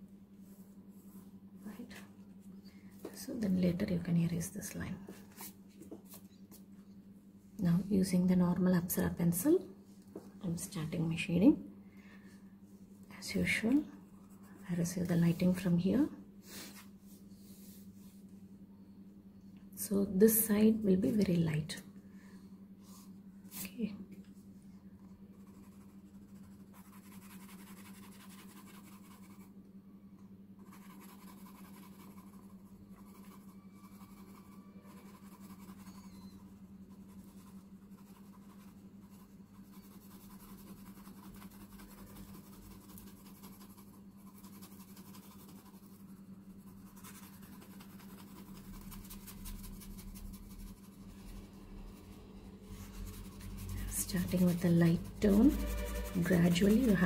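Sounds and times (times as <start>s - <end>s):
pencil scratching on paper: 25.3s - 29.5s, 30.6s - 57.0s
low hum: 45.8s - 57.0s.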